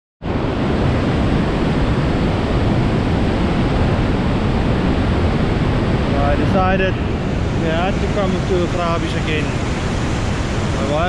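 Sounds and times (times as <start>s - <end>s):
waterfall rushing: 5.9s - 11.0s.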